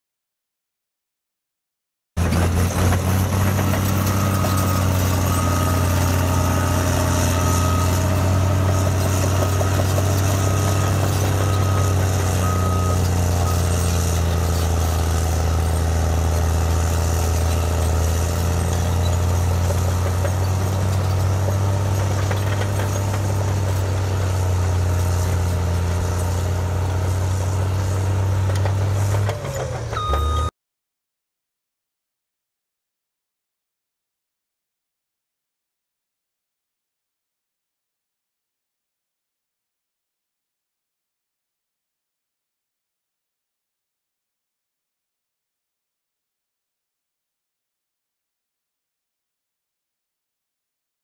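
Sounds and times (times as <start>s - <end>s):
bulldozer diesel engine droning: 2.2s - 30.5s
reversing alarm beeping: 3.1s - 15.8s, 29.5s - 30.5s.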